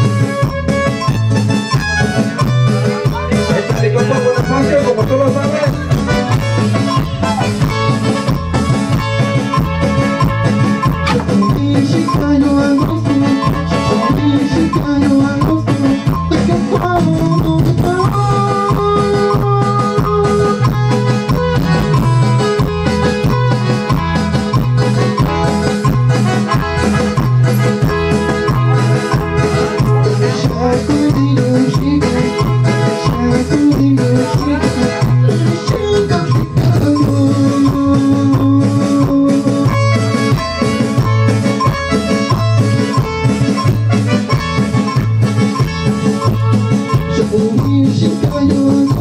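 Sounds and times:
held keyboard melody notes: 0:00.0 - 0:49.0
live band playing latin dance music: 0:00.0 - 0:49.0
steady bass beat: 0:00.0 - 0:49.0.

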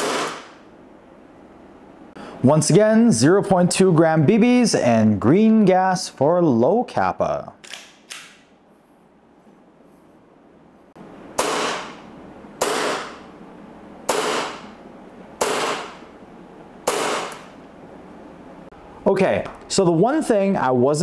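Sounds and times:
airsoft pistol shots: 0:00.0 - 0:00.6, 0:11.4 - 0:12.0, 0:12.6 - 0:13.2, 0:14.1 - 0:14.7, 0:15.4 - 0:16.0, 0:16.9 - 0:17.5.

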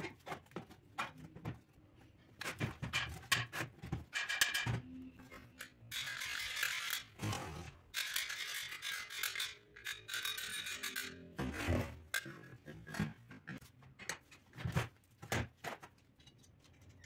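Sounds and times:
metal scraping on metal: 0:04.2 - 0:13.0.

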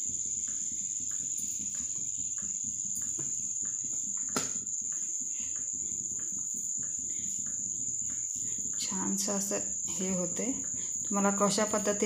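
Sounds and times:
hands patting food mixture: 0:00.0 - 0:09.2
cricket trilling: 0:00.0 - 0:12.0.

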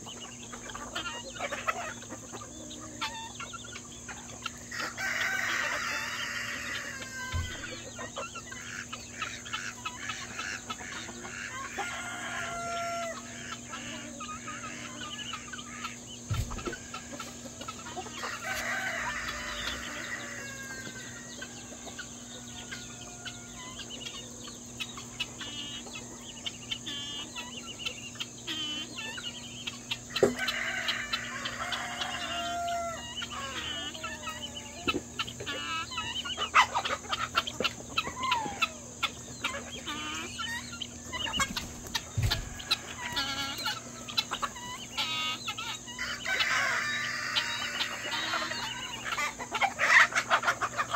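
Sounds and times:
chickens clucking: 0:00.0 - 0:50.9
rooster crowing: 0:04.7 - 0:08.0, 0:11.4 - 0:15.0, 0:16.6 - 0:24.0, 0:30.1 - 0:36.8, 0:41.2 - 0:50.3.

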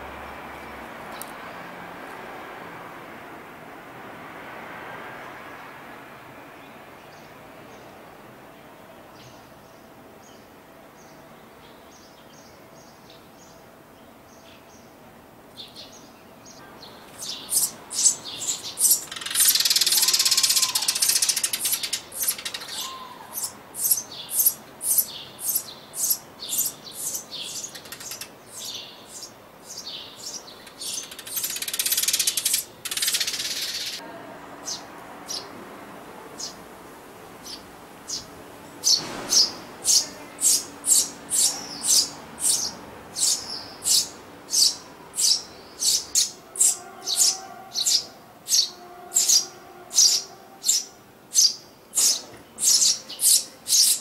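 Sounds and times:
nestlings begging chirps: 0:15.6 - 0:34.0, 0:37.4 - 0:54.0
shrill rapid chirps: 0:17.3 - 0:28.2.

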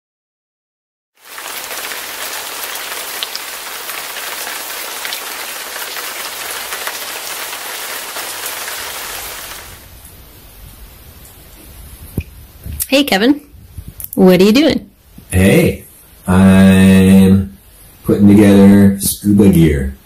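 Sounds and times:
rushing water hiss: 0:01.2 - 0:10.0.

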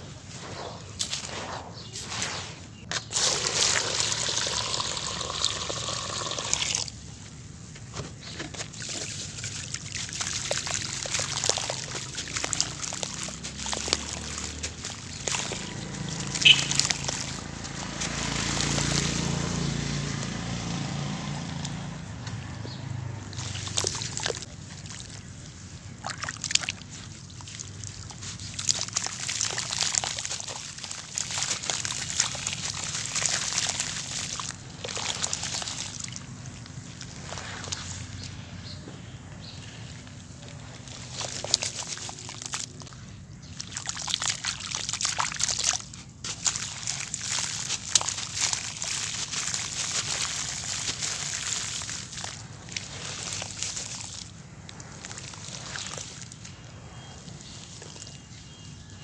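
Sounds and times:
hands sloshing in muddy water: 0:00.0 - 0:06.9, 0:08.2 - 0:20.5, 0:22.4 - 0:38.8, 0:39.6 - 0:58.9
water pouring into powder: 0:03.1 - 0:07.0, 0:08.7 - 0:19.7, 0:26.0 - 0:38.0, 0:43.6 - 0:56.4
clumps dropping into water: 0:08.5 - 0:19.4, 0:23.3 - 0:25.3, 0:26.0 - 0:38.0, 0:40.8 - 0:56.5.

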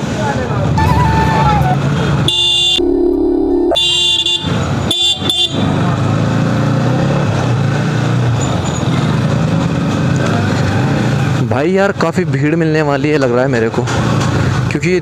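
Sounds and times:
vehicle horns beeping: 0:00.8 - 0:03.0, 0:03.6 - 0:05.8.

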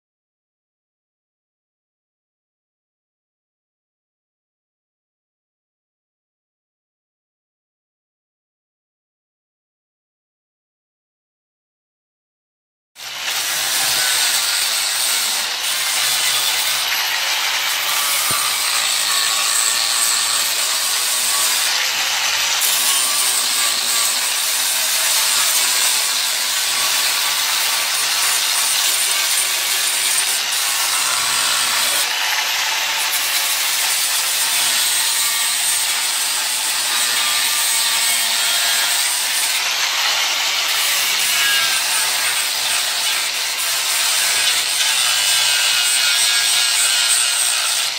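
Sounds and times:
angle grinder cutting steel: 0:13.0 - 0:47.9.

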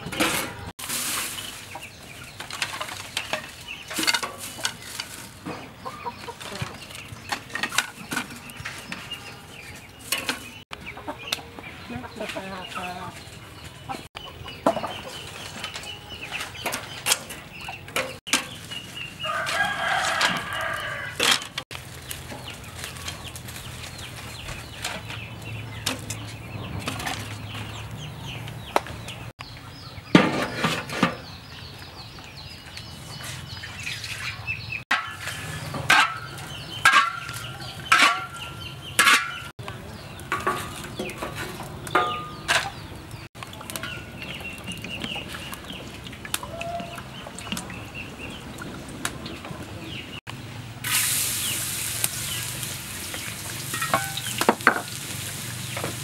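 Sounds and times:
chickens clucking: 0:00.0 - 0:50.2
rooster crowing: 0:19.2 - 0:21.3.

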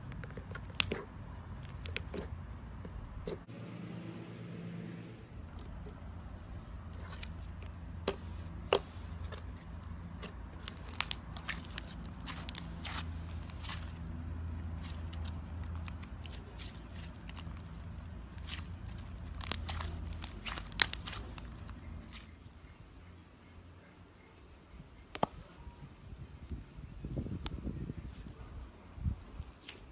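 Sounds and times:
slime squeezed crackling and popping: 0:06.9 - 0:22.3.

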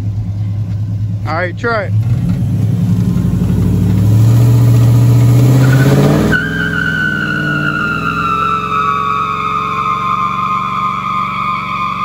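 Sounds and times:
truck engine revving: 0:00.8 - 0:12.0
tire squeal: 0:03.7 - 0:12.0.

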